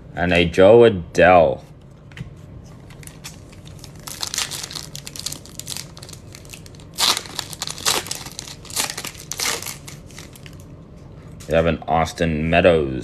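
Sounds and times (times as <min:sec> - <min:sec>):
foil wrapper crinkling and tearing: 0:02.9 - 0:10.6.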